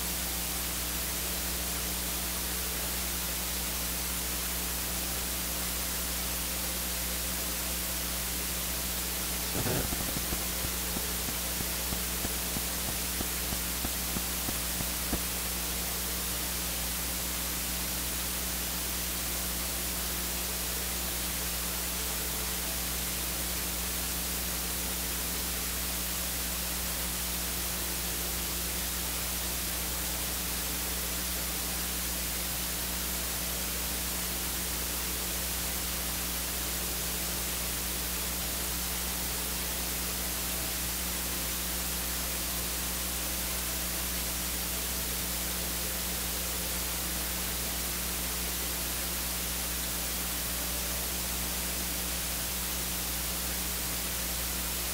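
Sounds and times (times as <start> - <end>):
static hiss: 0.0 - 54.9
low hum: 9.2 - 16.0.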